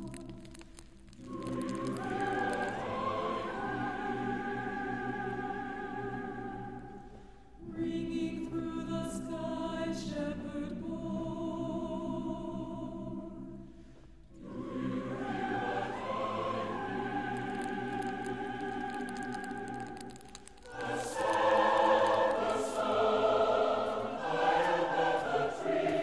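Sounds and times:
choir singing held notes: 0.0s - 8.0s, 14.4s - 26.0s.

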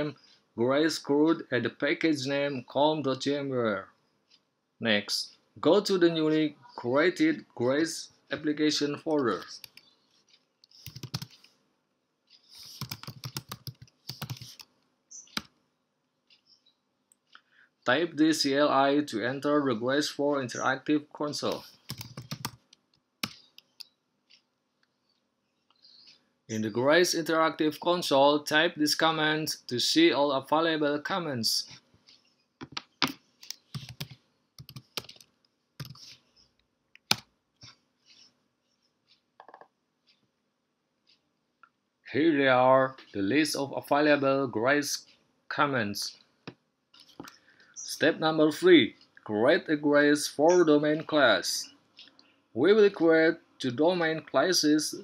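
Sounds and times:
computer keyboard typing: 9.2s - 9.9s, 10.6s - 11.5s, 12.5s - 15.6s, 21.4s - 23.9s, 32.6s - 36.2s.

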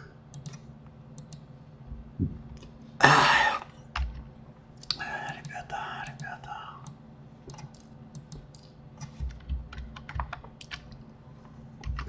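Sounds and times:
person coughing: 3.0s - 3.7s.

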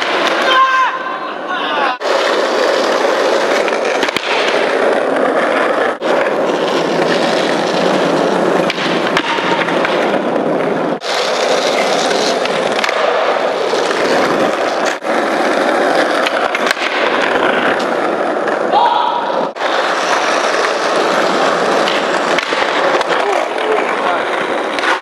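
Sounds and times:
skateboard wheels rolling on asphalt: 0.0s - 25.0s.

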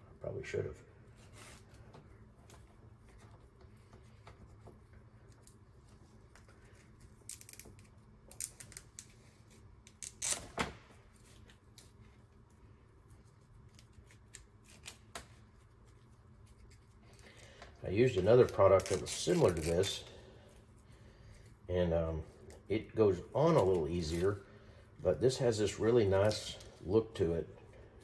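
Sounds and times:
wire sleeve rustling and clicking: 1.4s - 21.6s, 25.7s - 26.9s.

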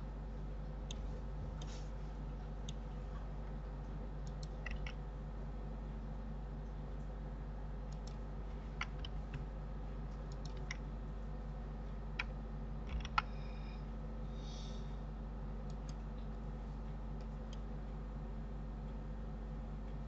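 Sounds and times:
low electrical hum: 0.0s - 20.0s
computer keyboard and mouse clicks: 4.2s - 5.0s, 7.9s - 8.2s, 8.8s - 9.5s, 10.2s - 10.8s, 12.2s - 13.3s, 15.7s - 16.4s.

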